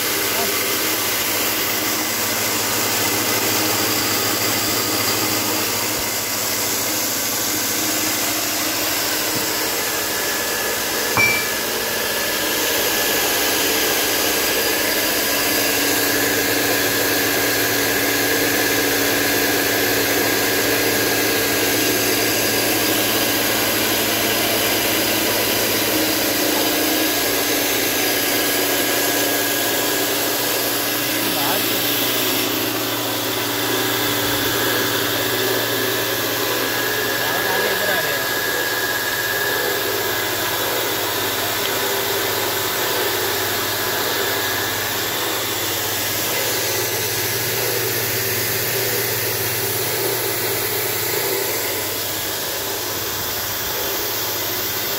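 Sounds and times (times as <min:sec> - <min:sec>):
rice mill running: 0:00.0 - 0:54.9.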